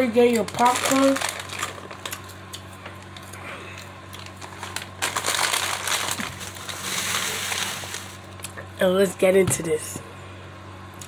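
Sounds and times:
foil snack bag crinkling: 0.0 - 3.3, 4.1 - 8.4.

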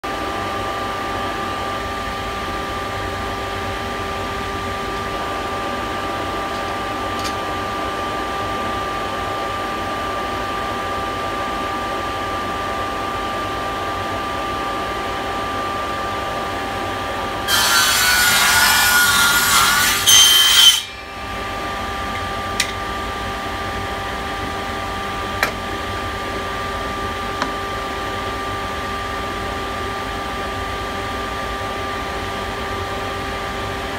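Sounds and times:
table saw whine: 0.2 - 33.9
saw blade cutting plywood: 17.5 - 21.4.

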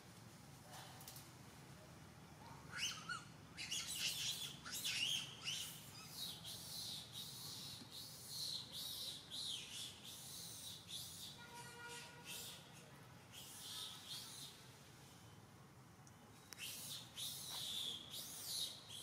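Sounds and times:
baby monkey squealing: 2.7 - 6.2.

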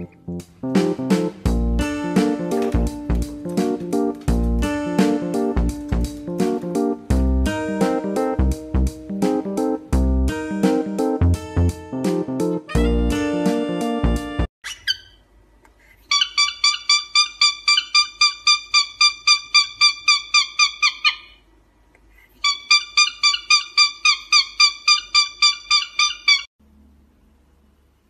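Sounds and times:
cockatiel calling: 14.6 - 15.2, 16.1 - 21.4, 22.4 - 26.5.

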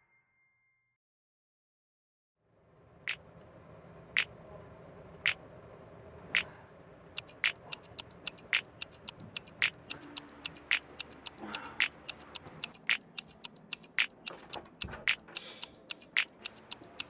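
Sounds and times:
clock ticking: 7.2 - 17.0
faster uneven ticks: 7.2 - 17.0.

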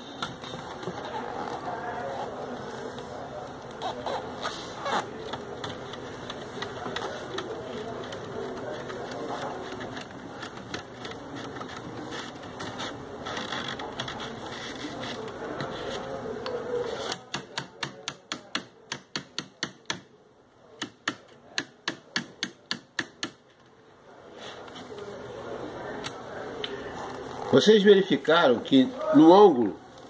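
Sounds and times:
sharp clicks of weaving tools: 16.4 - 20.1, 20.8 - 23.4.

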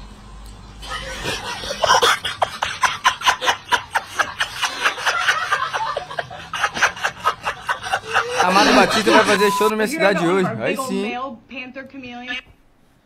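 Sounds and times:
man laughing: 0.8 - 11.0.

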